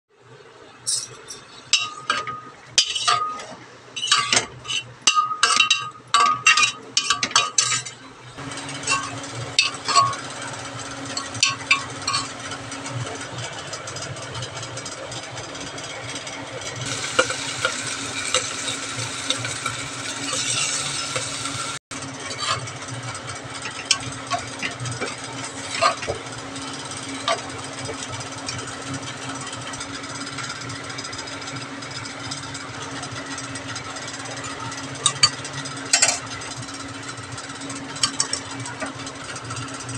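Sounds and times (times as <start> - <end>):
pressure cooker hissing: 8.4 - 15.4, 16.0 - 31.0.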